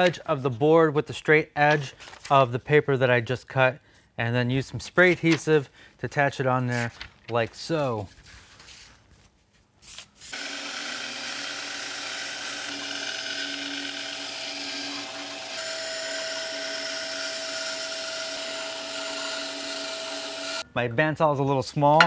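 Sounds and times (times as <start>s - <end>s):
bandsaw cutting plywood: 10.3s - 20.6s.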